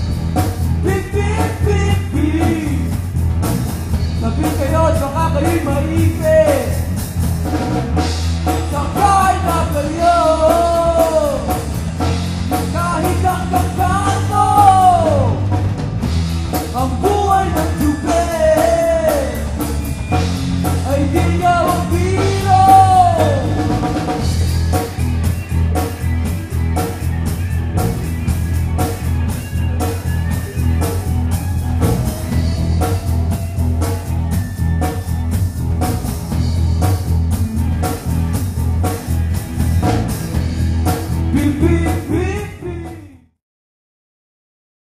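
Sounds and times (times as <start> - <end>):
live rock band playing: 0.0 - 43.3.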